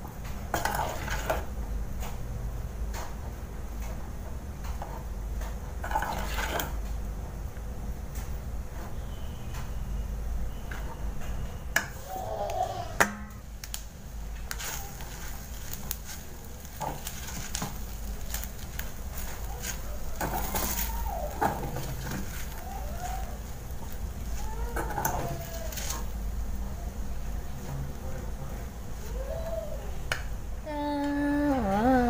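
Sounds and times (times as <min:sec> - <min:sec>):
spatula scraping metal pot: 0:00.6 - 0:01.4, 0:05.8 - 0:06.8.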